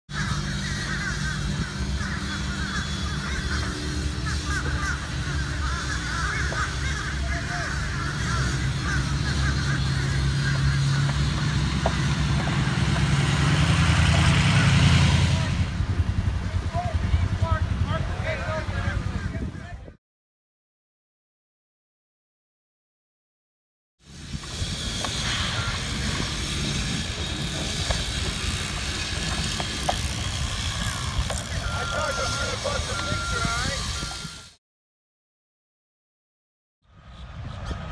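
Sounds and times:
flock of birds calling: 0.1 - 13.5, 24.7 - 34.5
construction machinery engines humming: 0.1 - 19.7, 24.0 - 34.6
hiss: 24.1 - 27.8.

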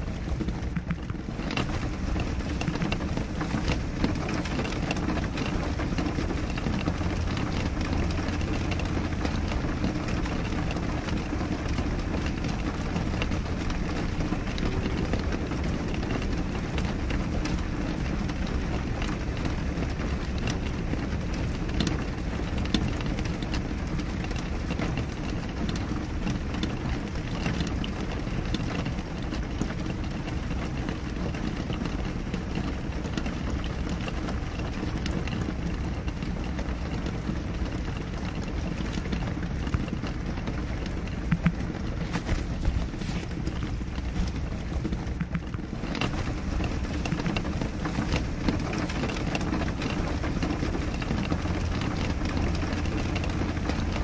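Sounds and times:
rain drops ticking on glass: 0.0 - 54.0.

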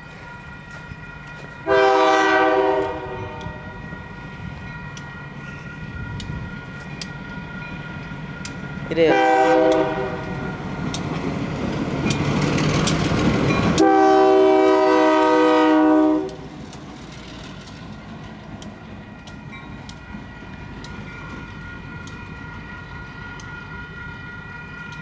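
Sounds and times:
crossing bell ringing: 0.0 - 16.6, 18.7 - 25.0
diesel locomotive rumbling past: 0.0 - 25.0
locomotive air horn blast: 1.6 - 3.6, 9.1 - 10.4, 13.8 - 16.5.

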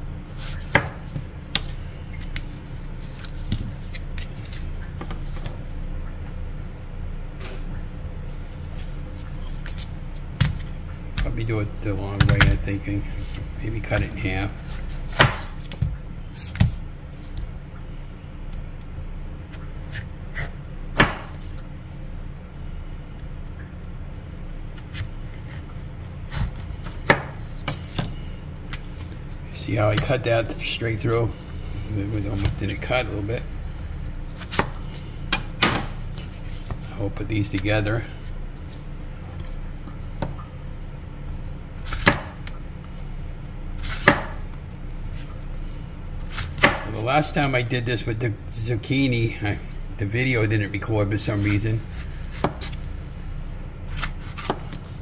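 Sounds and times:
low steady hum: 0.0 - 55.0
knife chopping on cutting board: 0.5 - 1.7, 15.1 - 16.0, 20.4 - 21.4, 26.3 - 28.1, 43.8 - 44.4, 46.3 - 46.9, 54.0 - 54.8
knife cutting zucchini: 53.9 - 55.0.

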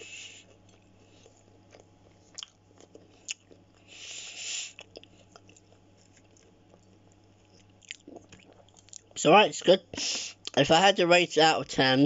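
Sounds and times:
person chewing food: 0.0 - 9.2.

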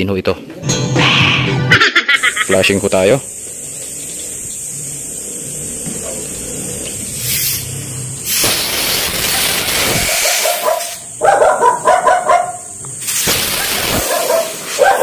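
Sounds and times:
pressurised gas hissing: 2.2 - 11.2, 12.4 - 15.0
dog barking: 10.2 - 12.7, 13.6 - 15.0.

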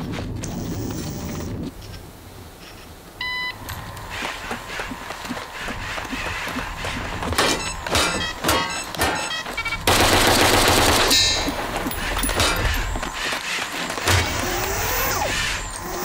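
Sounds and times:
automatic gunfire burst: 9.9 - 11.2.

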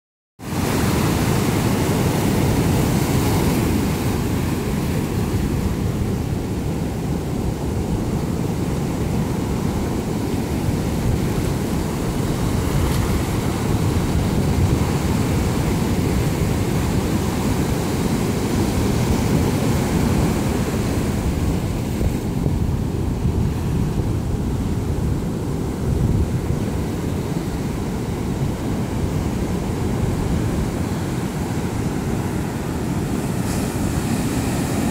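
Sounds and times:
surf washing over rocks: 0.4 - 34.9
wind buffeting microphone: 0.5 - 34.9.

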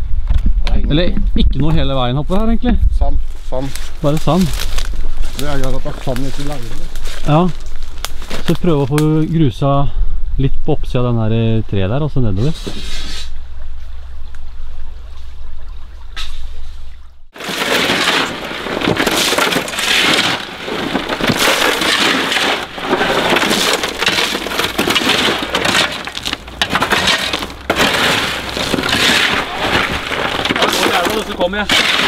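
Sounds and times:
shovels scraping gravel: 3.5 - 8.6, 17.4 - 32.0.

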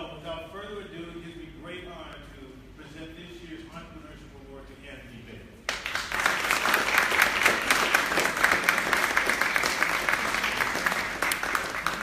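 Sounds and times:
audience applauding: 5.7 - 12.0.

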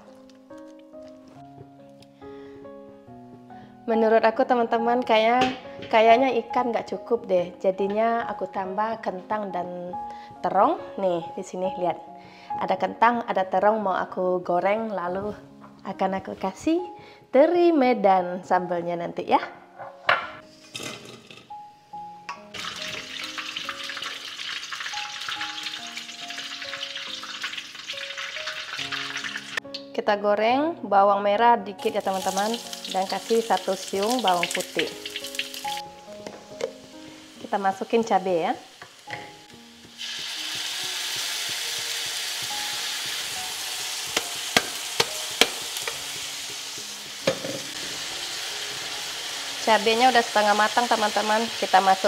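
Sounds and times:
simple background melody: 0.0 - 52.0
crackling sizzle in hot oil: 22.5 - 29.6, 31.8 - 52.0
spatula knocking pan: 39.1 - 47.7.

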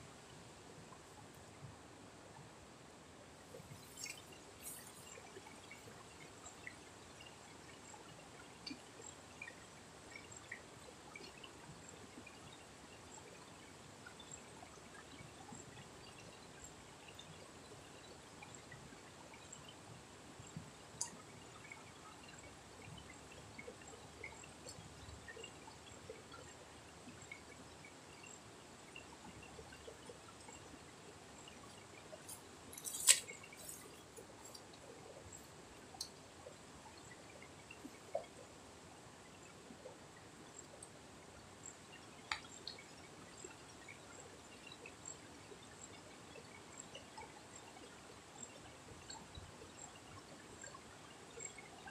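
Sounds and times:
small ticks: 3.4 - 38.5, 39.3 - 41.0, 41.6 - 51.9
clicks and rustles: 31.7 - 34.8.

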